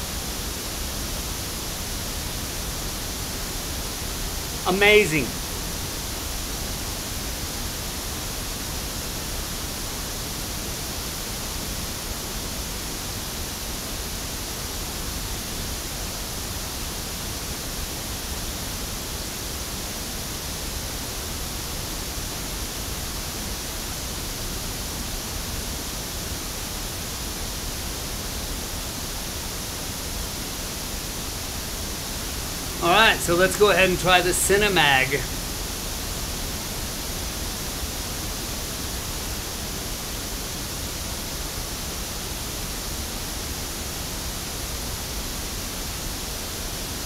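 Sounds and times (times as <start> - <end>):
pink noise from loudspeaker: 0.0 - 11.8, 29.7 - 35.7.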